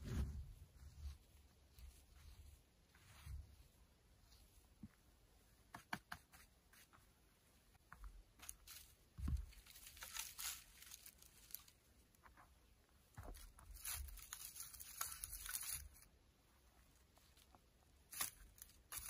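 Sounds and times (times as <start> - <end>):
dry sticks rattling and crackling: 8.3 - 11.9, 13.2 - 16.1, 18.1 - 19.0.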